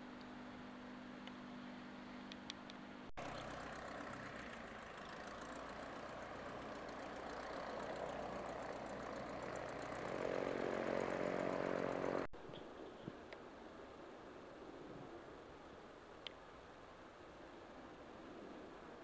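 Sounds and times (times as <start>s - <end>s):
propeller aircraft engine running: 0.3s - 12.3s.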